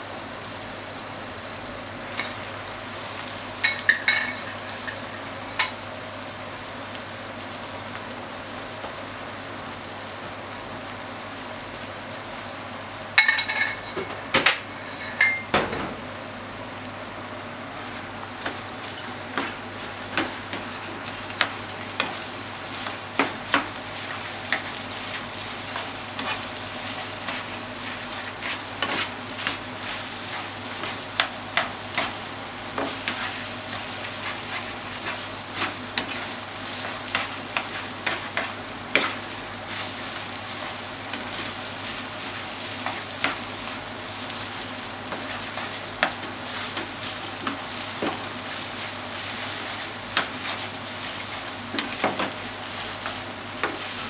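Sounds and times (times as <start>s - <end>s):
rice sizzling in a frying pan: 0.0s - 54.0s.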